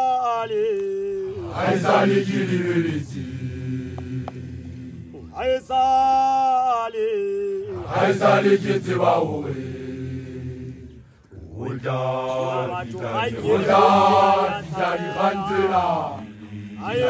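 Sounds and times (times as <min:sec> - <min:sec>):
group chanting: 0:01.0 - 0:05.7, 0:07.5 - 0:17.0
person calling in long high voice: 0:14.5 - 0:15.8.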